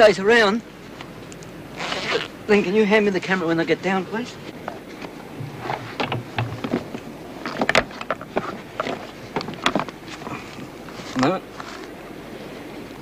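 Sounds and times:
low hum: 0:04.3 - 0:11.0
gear knocking on wooden deck: 0:05.4 - 0:09.9.

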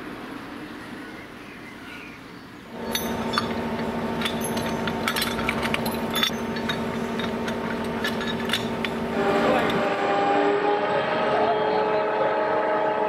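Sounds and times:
construction machinery running: 0:02.7 - 0:12.4
light metallic clinks: 0:02.8 - 0:09.0.

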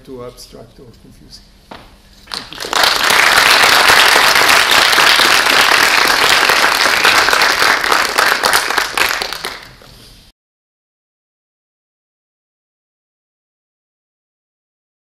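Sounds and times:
audience applauding: 0:02.3 - 0:09.9.

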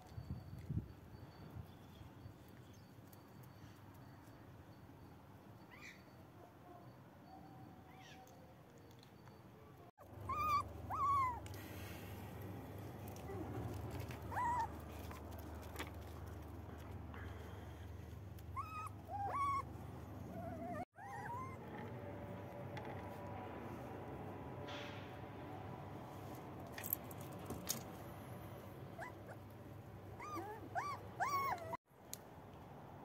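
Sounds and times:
puppies whining: 0:10.0 - 0:11.9, 0:12.8 - 0:15.9, 0:18.5 - 0:22.0, 0:29.0 - 0:29.5, 0:30.2 - 0:31.8.

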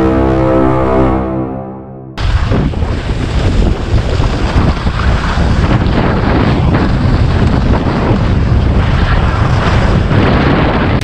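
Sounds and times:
skis scraping packed snow: 0:02.2 - 0:11.0
wind buffeting microphone: 0:02.2 - 0:11.0.

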